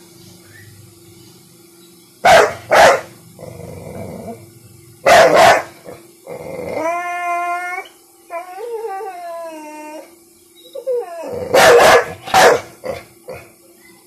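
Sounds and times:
dog barking: 2.2 - 3.1, 5.0 - 5.8, 11.5 - 12.8
dog whining howls: 6.6 - 11.8.

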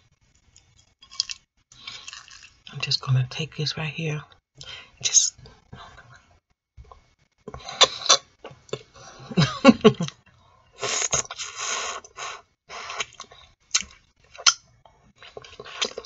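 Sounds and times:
person eating close up: 0.5 - 2.7, 7.4 - 16.0
wet mouth smacking: 13.0 - 14.6.

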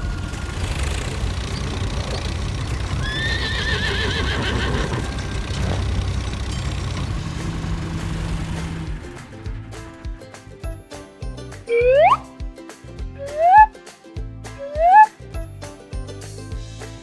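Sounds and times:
tractor engine running: 0.0 - 11.0
horse whinnying: 3.0 - 5.1.

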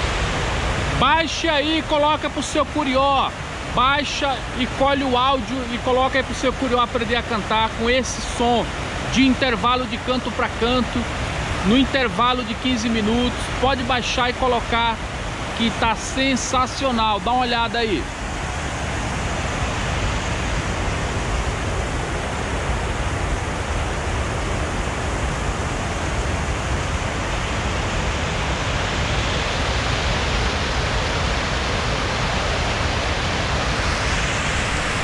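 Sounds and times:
water rushing down spillway: 0.0 - 35.0.

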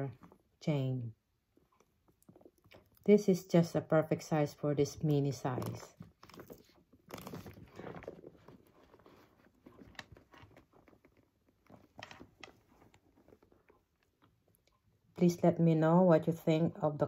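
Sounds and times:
soft rustles: 5.3 - 15.0.

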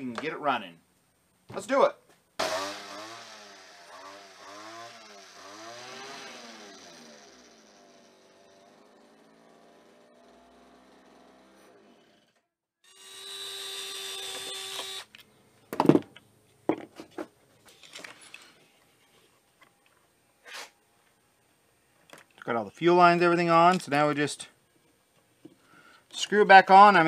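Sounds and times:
cordless drill whirring: 2.4 - 8.4, 12.9 - 15.2
hedge trimmer engine idling: 2.4 - 12.3.

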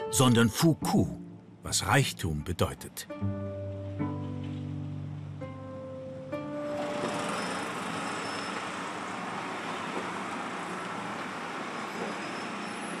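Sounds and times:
road traffic noise: 4.2 - 13.0.

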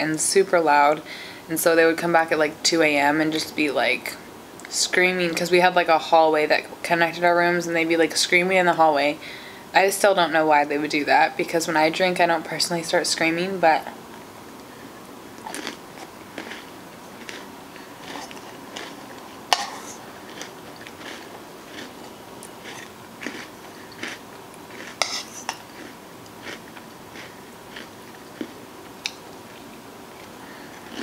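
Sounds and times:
chewing and mouth sounds: 15.4 - 31.0
metal spoon scraping plastic bowl: 25.0 - 25.6.

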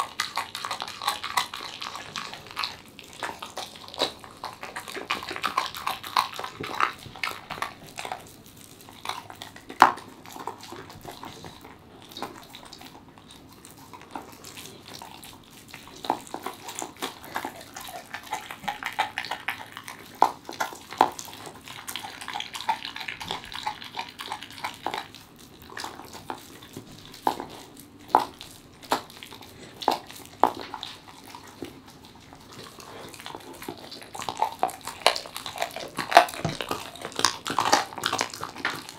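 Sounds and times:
dog chewing meat: 0.0 - 38.9
bone crunching: 25.7 - 38.9.

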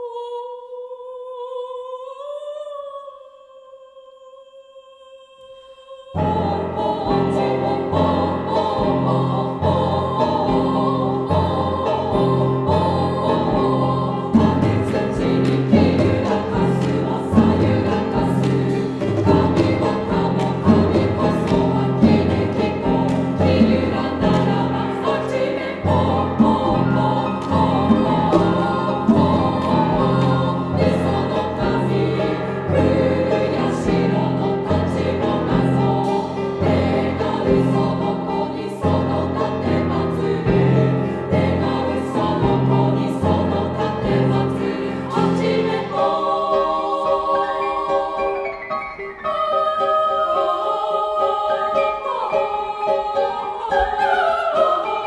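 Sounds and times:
women's chorus singing: 0.0 - 55.0
instrumental accompaniment: 6.2 - 49.4.

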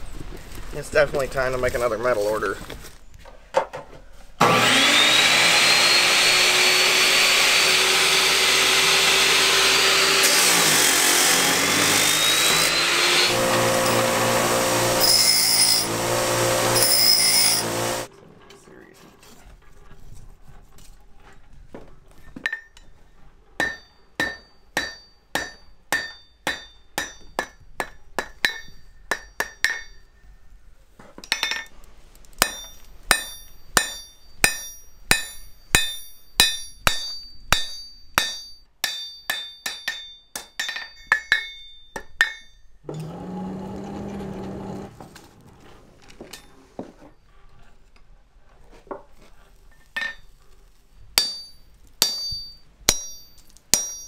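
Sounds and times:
hammer striking steel on an anvil: 23.6 - 30.2, 31.2 - 31.7, 32.4 - 42.7, 51.2 - 54.0.

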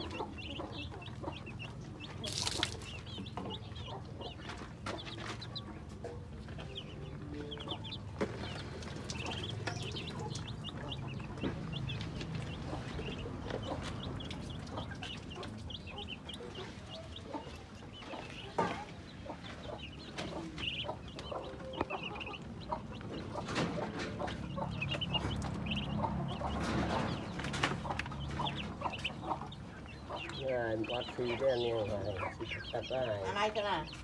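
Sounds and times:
ducklings peeping: 0.0 - 34.0.

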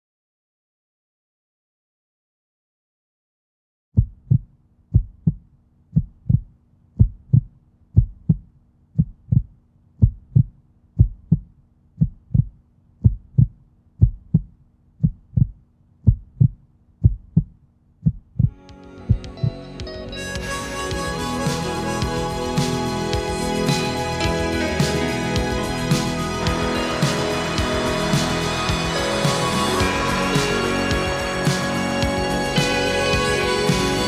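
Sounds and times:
heartbeat thumps: 4.0 - 19.6
music: 18.5 - 34.0.

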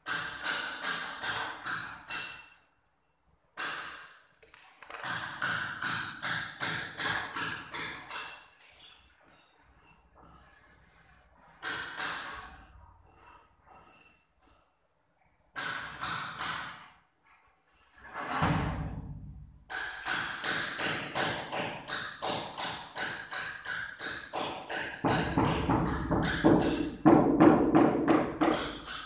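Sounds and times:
rubber mallet tapping floor tile: 19.7 - 29.0.

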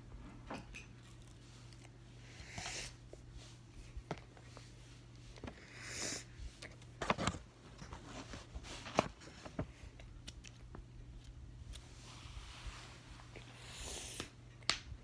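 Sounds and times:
steady low hum: 0.0 - 15.0
paper rustle: 7.0 - 9.8.

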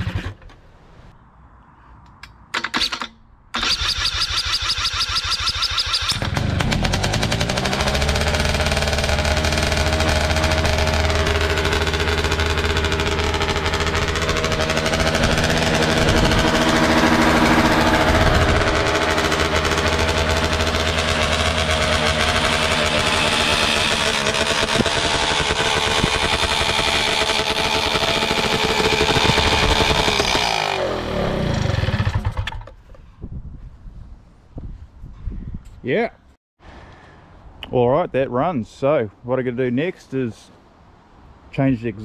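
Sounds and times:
two-stroke engine revving: 3.6 - 32.6.

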